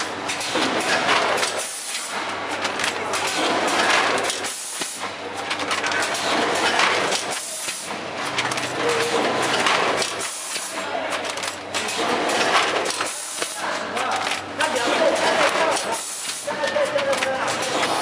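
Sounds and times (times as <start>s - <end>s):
mechanical clatter: 0.0s - 18.0s.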